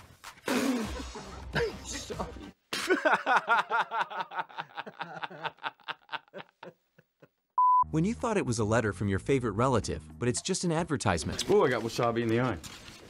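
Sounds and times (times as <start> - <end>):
man laughing hard: 0.9 - 7.4.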